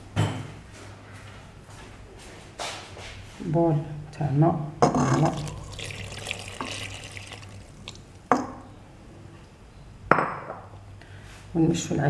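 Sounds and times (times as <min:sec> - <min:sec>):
water pouring into metal bowl: 0:05.0 - 0:08.3.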